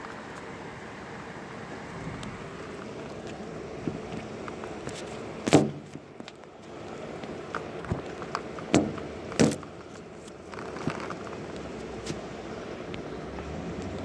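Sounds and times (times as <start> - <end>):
sharp knocks: 5.5 - 6.0, 8.7 - 9.6.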